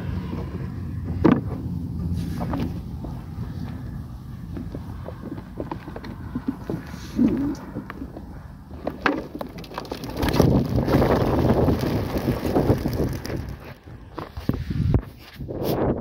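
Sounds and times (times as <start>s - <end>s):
pigeons flapping wings: 9.2s - 14.1s.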